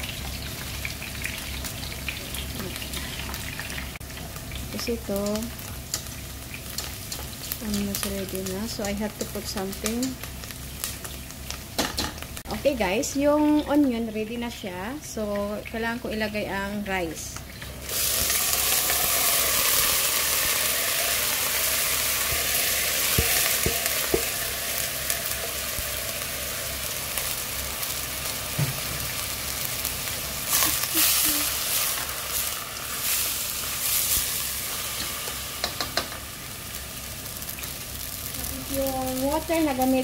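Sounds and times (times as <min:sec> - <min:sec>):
onions sizzling in oil: 0:00.0 - 0:40.0
rice poured into pot: 0:17.9 - 0:27.0.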